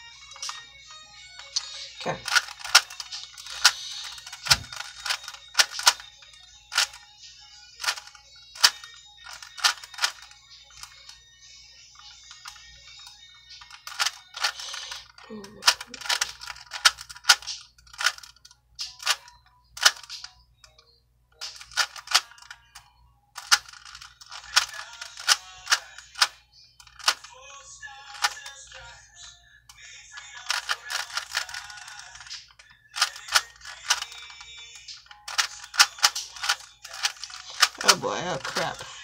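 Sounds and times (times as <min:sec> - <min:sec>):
puzzle cube layers clicking: 0:01.4 - 0:07.0, 0:07.8 - 0:11.2, 0:12.1 - 0:20.4, 0:21.4 - 0:22.8, 0:23.4 - 0:27.3, 0:28.1 - 0:28.6, 0:30.2 - 0:38.9.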